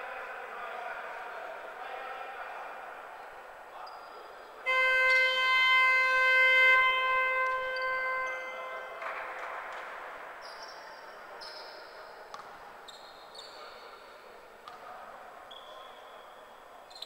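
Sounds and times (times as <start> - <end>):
game horn: 4.6 - 8.9
sneakers squeaking on floor: 7.4 - 9.2, 10.4 - 14.0, 15.5 - 17.0.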